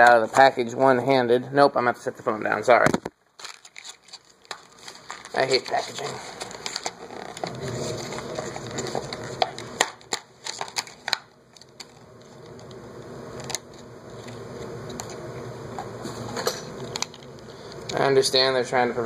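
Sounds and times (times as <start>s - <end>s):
packaging rustling: 3.0s - 12.8s
packaging clicking and crackling: 3.4s - 12.8s.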